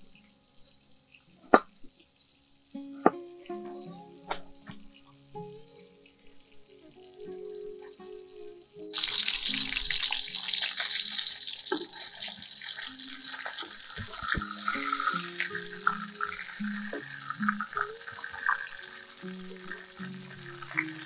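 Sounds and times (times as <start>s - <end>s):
fish sizzling in hot oil: 8.9s - 21.0s.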